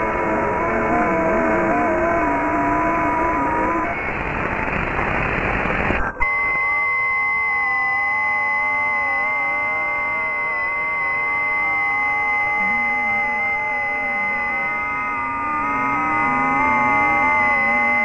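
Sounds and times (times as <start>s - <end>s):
steady wobbling tones with whistle: 0.0s - 4.2s, 6.3s - 18.0s
radio noise rush: 0.0s - 6.6s
wavering radio tones: 0.0s - 18.0s.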